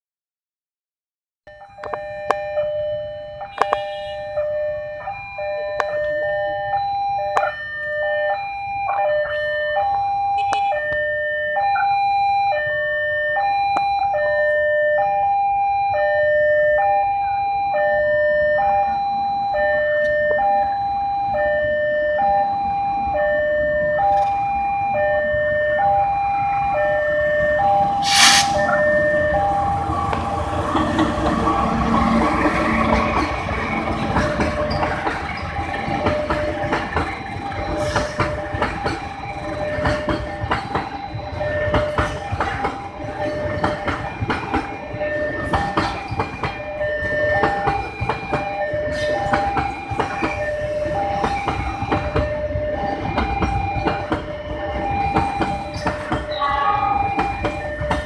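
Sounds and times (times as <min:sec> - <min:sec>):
level crossing two-tone alarm: 0:01.5 - 0:58.0
diesel locomotive rumble: 0:25.3 - 0:58.0
short sharp sound: 0:28.0 - 0:28.7.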